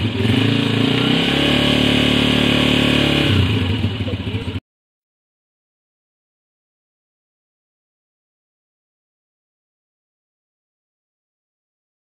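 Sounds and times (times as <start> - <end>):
motorcycle engine revving and idling: 0.0 - 4.6.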